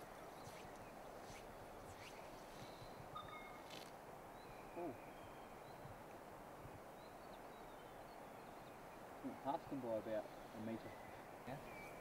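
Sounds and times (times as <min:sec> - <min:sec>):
bird calls: 0:00.0 - 0:05.9, 0:10.2 - 0:12.0
faint river flow: 0:00.0 - 0:12.0.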